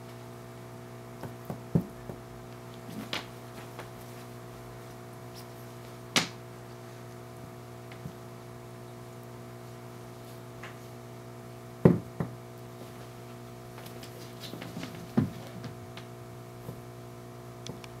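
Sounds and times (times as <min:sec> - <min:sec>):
steady electrical hum: 0:00.0 - 0:18.0.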